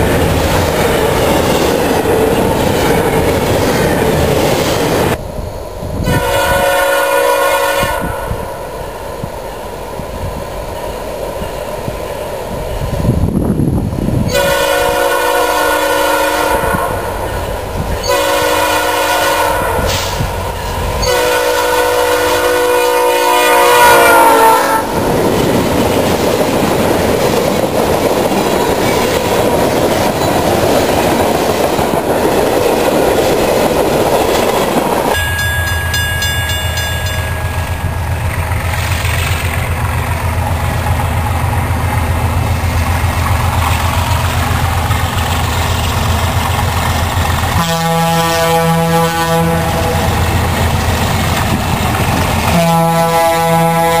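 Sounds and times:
distant locomotive drone: 0.0s - 54.0s
train wheels rumbling on rail: 0.0s - 54.0s
locomotive air horn blasts: 6.0s - 8.4s, 14.3s - 17.1s, 18.0s - 20.3s, 21.0s - 25.0s, 47.5s - 50.1s, 52.5s - 54.0s.

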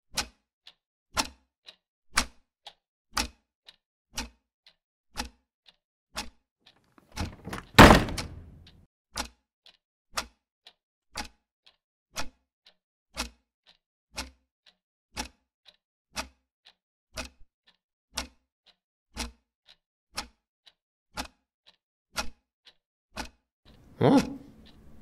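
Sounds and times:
clock ticking: 0.2s - 5.4s, 7.2s - 18.4s, 19.2s - 25.0s
soft knocks: 7.2s - 8.6s.

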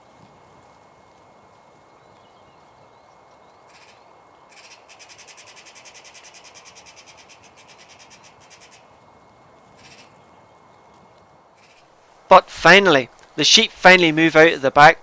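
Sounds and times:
magpie chattering: 3.7s - 8.9s, 9.8s - 10.1s.

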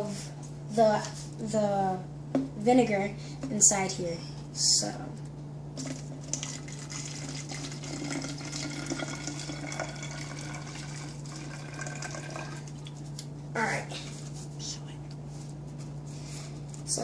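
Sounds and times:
liquid pouring into a bottle: 5.8s - 13.0s.

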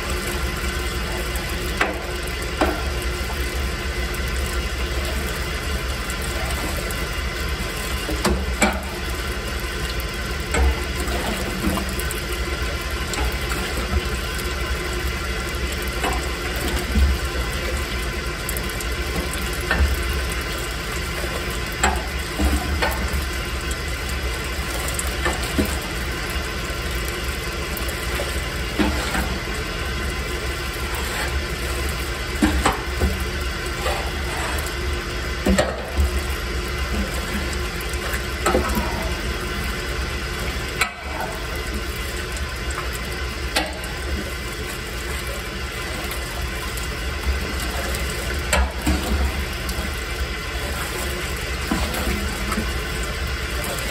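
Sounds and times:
grain mill grinding: 30.7s - 35.5s.

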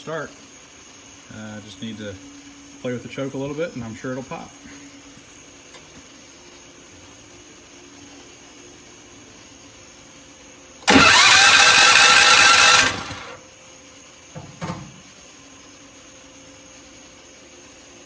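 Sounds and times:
engine cranked by electric starter: 10.8s - 13.4s.

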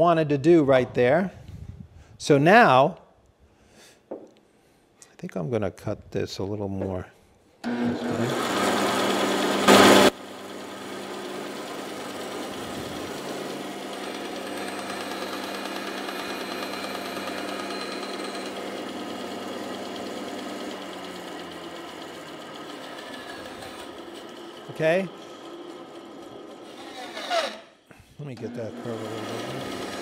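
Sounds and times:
bandsaw cutting wood: 7.6s - 27.7s, 28.4s - 30.0s.

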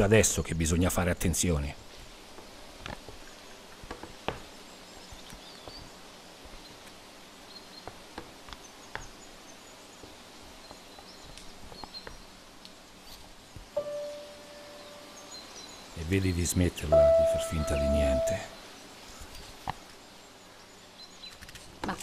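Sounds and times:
faint bird chirps: 13.7s - 19.6s.

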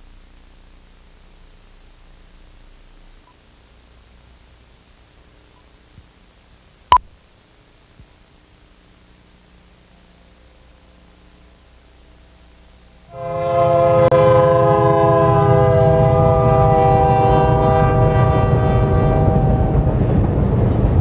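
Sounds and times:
faint hiss: 0.0s - 13.5s
train horn chord: 13.1s - 20.0s
train rumbling past: 13.1s - 21.0s.

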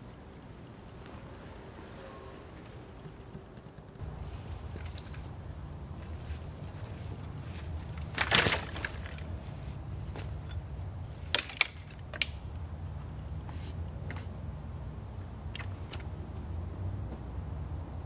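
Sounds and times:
dry wood cracking: 3.1s - 9.4s, 11.3s - 12.6s
dry branches dropped crashing: 4.0s - 9.4s, 11.3s - 12.4s.

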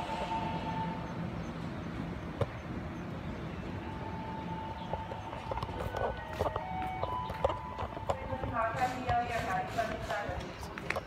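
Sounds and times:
electric train rumbling: 0.0s - 11.0s.

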